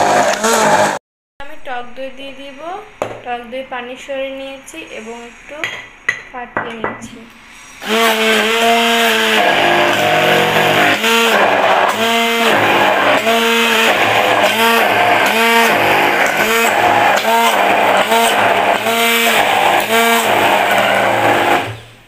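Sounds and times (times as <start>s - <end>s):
hand blender motor running: 0.0s - 1.0s, 7.8s - 21.8s.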